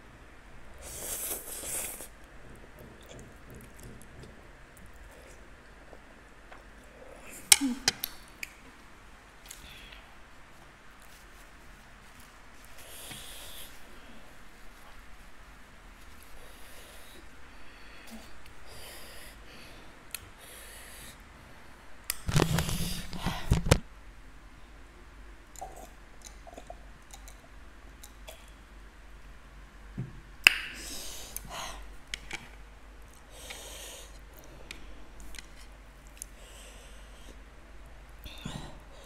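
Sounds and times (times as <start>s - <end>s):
sniffs and breaths: 12.7s - 14.3s.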